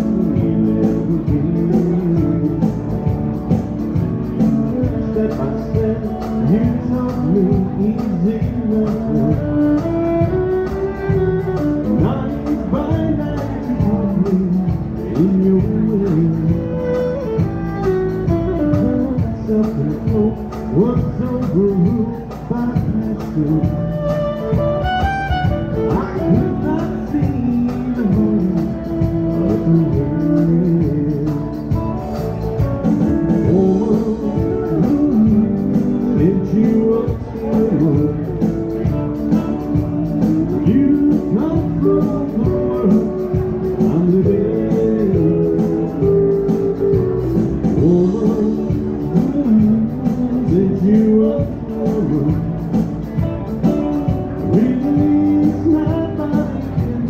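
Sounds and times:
live country band playing: 0:00.0 - 0:57.0
fiddle bowing: 0:23.8 - 0:26.8.

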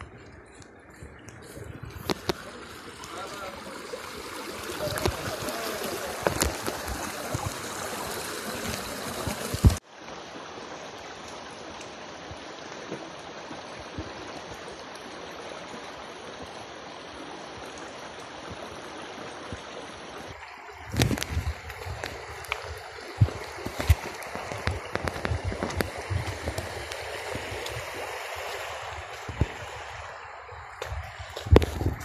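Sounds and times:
stream water rushing: 0:00.0 - 0:32.0.

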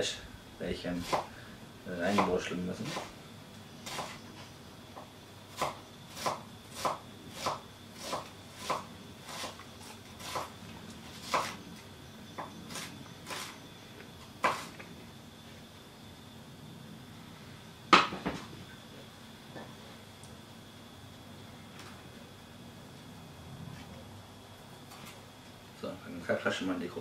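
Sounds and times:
knife chopping on wooden board: 0:01.0 - 0:01.3, 0:05.6 - 0:10.5, 0:11.2 - 0:11.6, 0:14.4 - 0:14.7.

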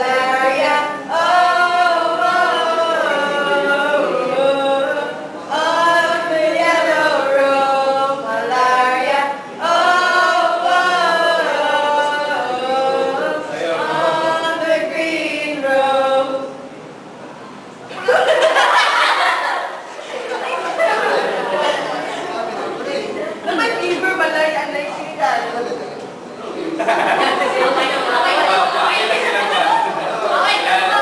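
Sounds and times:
group singing unaccompanied: 0:00.0 - 0:16.7, 0:26.8 - 0:31.0.

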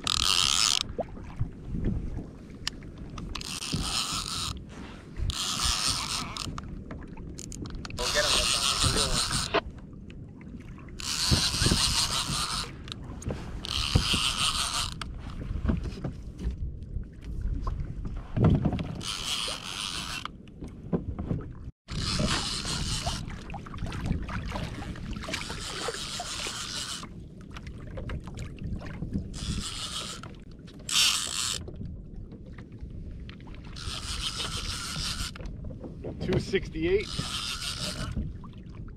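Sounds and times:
fishing reel gears whirring: 0:00.0 - 0:00.9, 0:03.3 - 0:04.6, 0:05.2 - 0:06.6, 0:07.4 - 0:09.6, 0:11.0 - 0:13.0, 0:13.6 - 0:15.1, 0:19.0 - 0:20.3, 0:21.9 - 0:23.4, 0:24.8 - 0:27.1, 0:29.3 - 0:31.7, 0:33.8 - 0:35.4, 0:36.4 - 0:38.2
wind and water rumble: 0:00.0 - 0:38.9.

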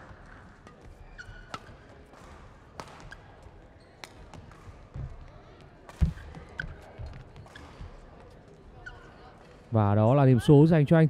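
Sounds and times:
shoes squeaking on court: 0:00.8 - 0:04.7
racket hitting shuttlecock: 0:01.4 - 0:03.2.

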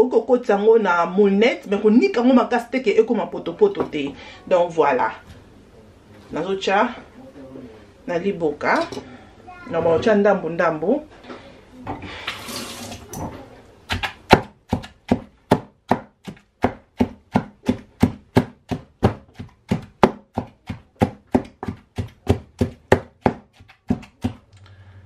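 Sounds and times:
pestle pounding in wooden mortar: 0:13.9 - 0:24.5.

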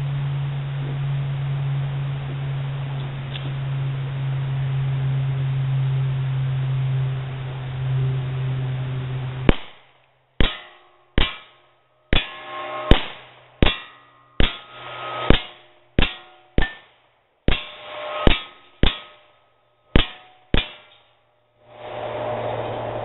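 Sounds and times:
pistol shots: 0:09.5 - 0:19.2, 0:19.9 - 0:21.0
bullets clanging on steel target: 0:09.5 - 0:21.4.

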